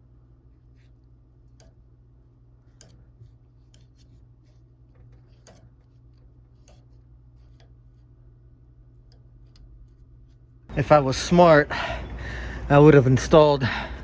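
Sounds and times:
steady low hum: 0:00.0 - 0:14.0
light clicks and rubs: 0:02.6 - 0:08.2.

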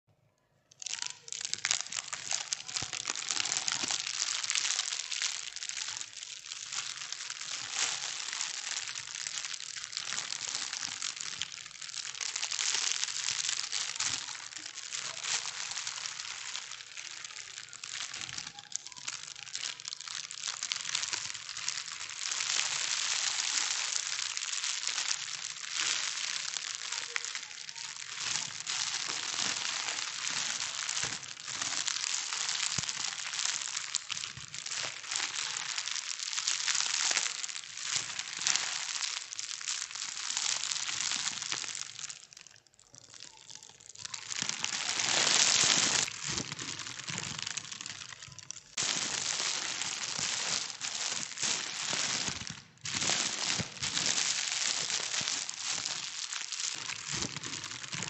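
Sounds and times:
plastic bags crinkling: 0:00.7 - 0:58.0.

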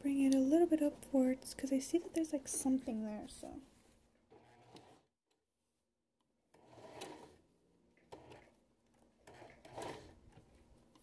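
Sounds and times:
fabric rustling at sewing machine: 0:02.5 - 0:05.1, 0:06.6 - 0:10.7.

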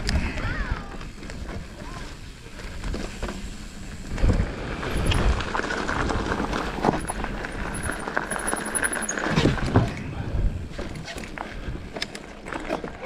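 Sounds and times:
bike tyres crunching on gravel: 0:00.0 - 0:09.8
bike knocking and rattling: 0:00.0 - 0:13.0.

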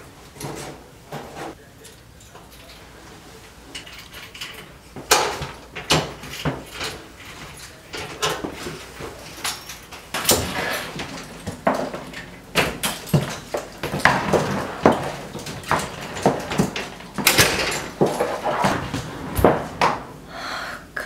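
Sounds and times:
door being unlocked and opened: 0:09.3 - 0:20.1.

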